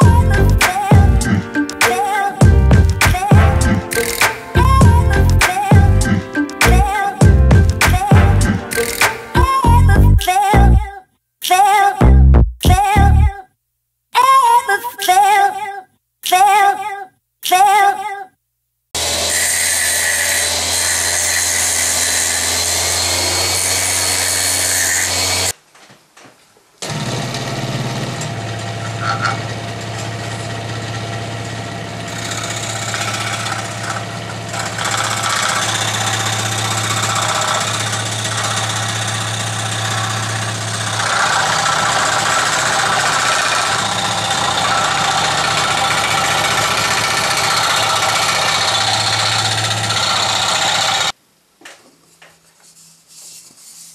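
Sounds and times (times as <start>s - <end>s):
scroll saw cutting wood: 0.0s - 9.4s, 19.0s - 25.6s, 26.8s - 51.2s
rotary tool running: 26.8s - 51.2s.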